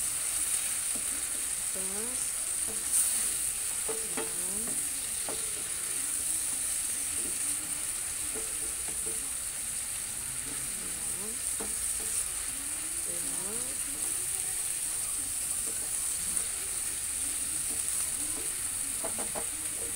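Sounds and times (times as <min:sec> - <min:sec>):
beef sizzling in a frying pan: 0:00.0 - 0:19.9
spatula clicking against pan: 0:08.2 - 0:09.3, 0:11.5 - 0:12.3, 0:17.6 - 0:19.8.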